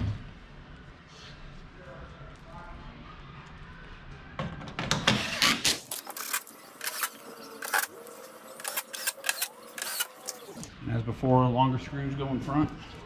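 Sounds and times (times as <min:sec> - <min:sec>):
sharp clicks and knocks of tools: 0:08.6 - 0:10.5.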